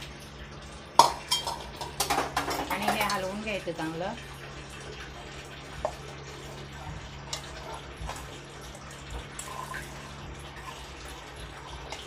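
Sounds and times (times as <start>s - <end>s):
spoon clinking on bowl: 1.0s - 3.2s
wet squelching stirring: 4.7s - 12.0s.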